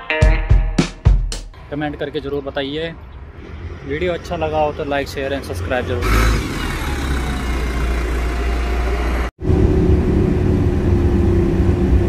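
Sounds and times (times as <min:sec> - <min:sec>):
bus engine rumbling: 0:01.6 - 0:12.0
engine drone inside moving bus: 0:04.6 - 0:12.0.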